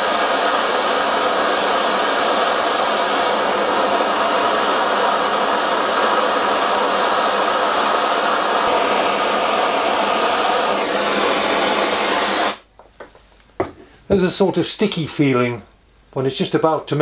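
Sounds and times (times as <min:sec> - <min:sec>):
torch flame hissing: 0:00.0 - 0:12.7.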